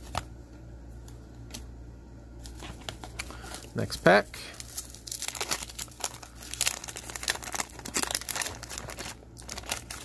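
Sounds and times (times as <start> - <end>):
paper wrapper crinkling and tearing: 2.4 - 10.0.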